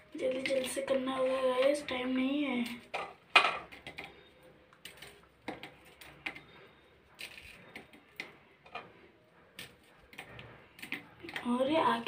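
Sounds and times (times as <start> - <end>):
cookies snapping and crumbling: 2.6 - 11.6.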